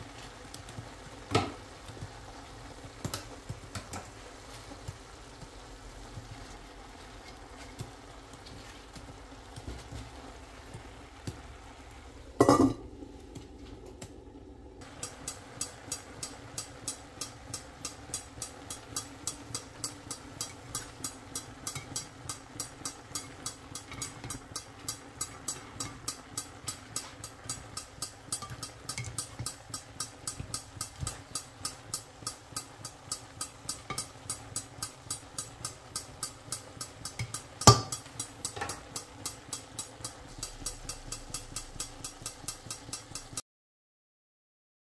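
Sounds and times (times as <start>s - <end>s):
utensil clinking in steel pan: 12.4s - 12.8s, 19.2s - 22.1s, 25.2s - 32.3s, 37.1s - 39.0s.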